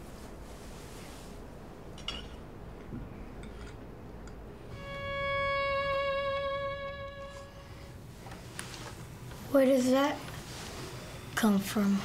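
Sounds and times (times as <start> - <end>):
violin long bowed note: 4.7 - 7.9.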